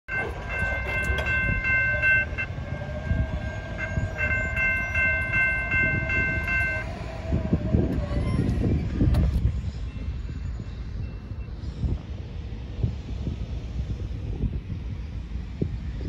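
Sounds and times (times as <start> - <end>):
railroad crossing bell dinging: 0.1 - 8.5.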